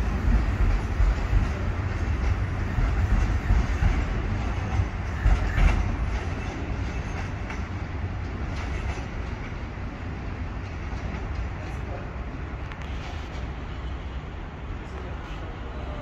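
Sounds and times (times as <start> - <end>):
train rumbling over rails: 0.0 - 16.0
train wheel knocks: 0.1 - 9.6.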